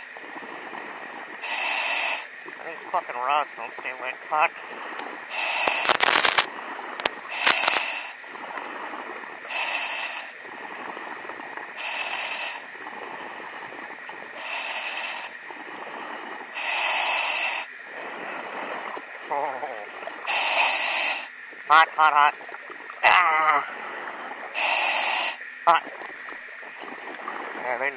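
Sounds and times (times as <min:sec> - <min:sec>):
diver breathing through gear: 0:01.4 - 0:02.3, 0:04.6 - 0:10.4, 0:11.8 - 0:12.8, 0:14.3 - 0:19.0, 0:20.2 - 0:21.3, 0:23.7 - 0:25.4
sharp crackling clicks: 0:05.0 - 0:08.0.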